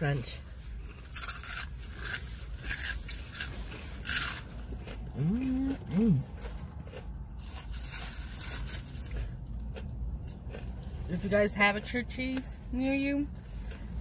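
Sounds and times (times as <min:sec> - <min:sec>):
crunchy bites into fried chicken: 0:04.1 - 0:10.8
person humming mm-hmm: 0:05.2 - 0:06.2.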